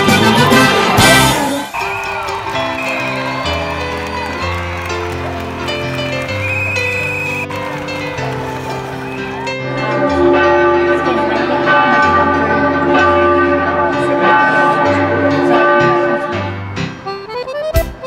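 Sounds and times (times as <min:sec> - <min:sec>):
bell-like tones: 0:09.0 - 0:16.7.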